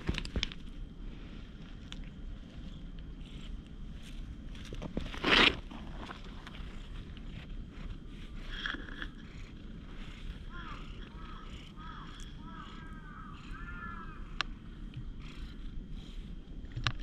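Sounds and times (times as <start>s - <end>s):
low steady rumble: 0.0s - 17.0s
crows cawing: 10.4s - 14.6s.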